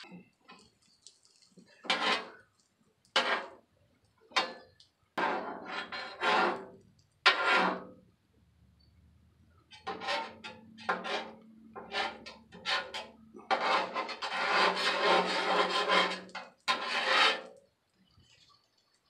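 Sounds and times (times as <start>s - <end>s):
metal spatulas scraping griddle: 1.8s - 2.4s, 3.2s - 3.6s, 5.2s - 8.0s, 9.8s - 17.6s.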